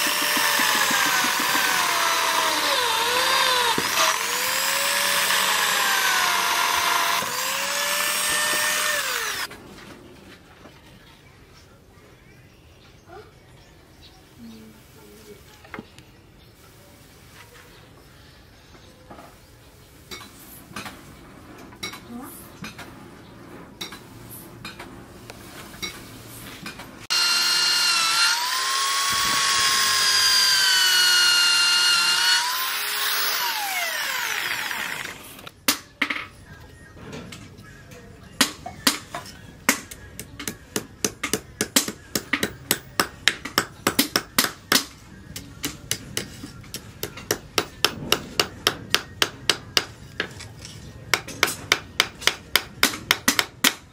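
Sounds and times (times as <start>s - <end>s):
electric drill whining: 0.0s - 9.5s, 27.1s - 35.5s.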